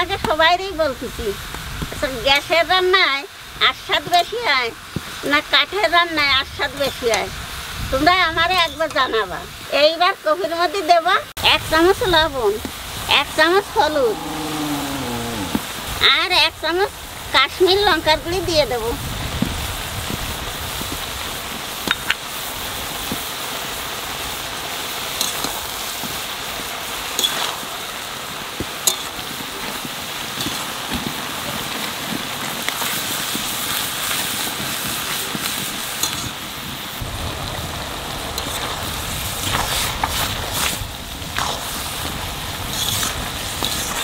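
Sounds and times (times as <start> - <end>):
cabbage sizzling in a wok: 0.0 - 44.0
metal spatula scraping wok: 42.6 - 44.0.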